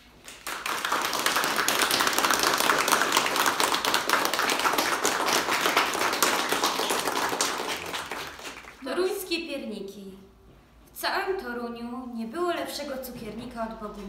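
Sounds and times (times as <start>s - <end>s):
people applauding: 0.0s - 8.9s.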